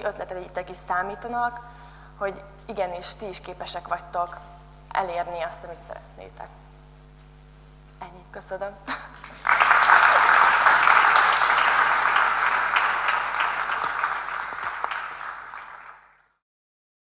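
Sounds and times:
audience applauding: 9.1 - 16.4.

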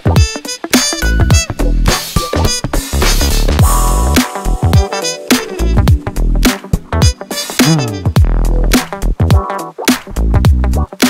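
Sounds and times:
music with heavy sliding bass: 0.0 - 11.0.

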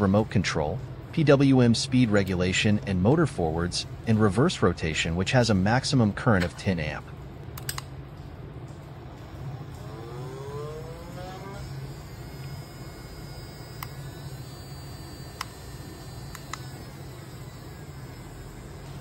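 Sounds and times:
small electric motor buzzing: 9.7 - 19.0.

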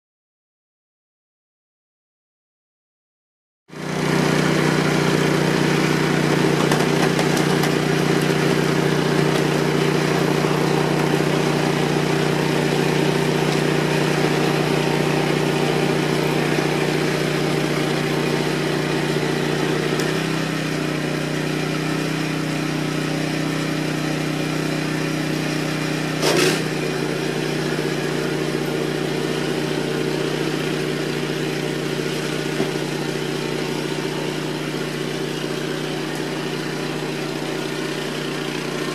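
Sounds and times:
snow blower engine running: 3.7 - 38.9
loud clatter: 4.1 - 20.4, 26.2 - 27.0.

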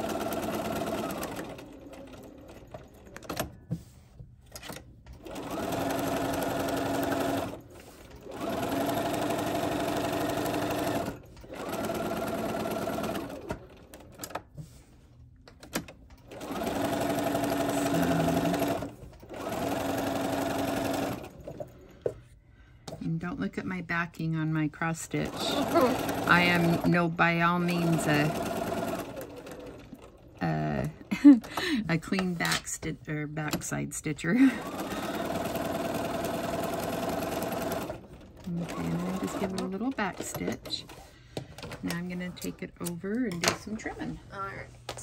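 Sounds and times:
sewing machine stitching: 0.0 - 3.5, 4.5 - 14.5, 15.6 - 21.8, 25.1 - 32.5, 34.4 - 42.6.

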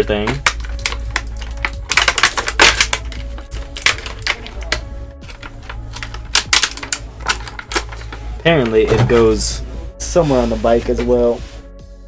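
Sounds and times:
plastic packaging crinkling: 0.2 - 8.8.

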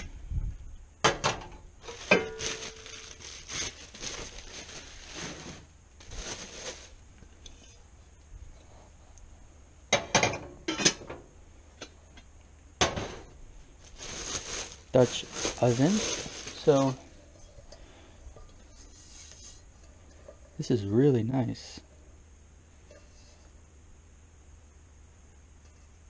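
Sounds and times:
metal pots and pans clanking: 1.1 - 2.8, 9.9 - 11.2
rustling and shuffling: 1.8 - 9.2, 12.9 - 23.8.

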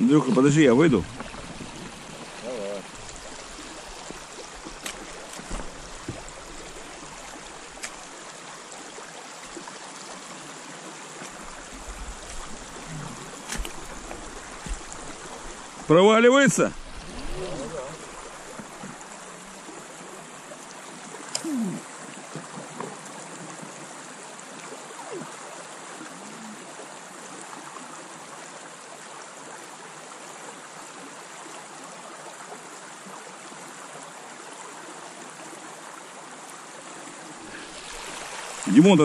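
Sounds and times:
river rushing over stones: 0.0 - 39.0.

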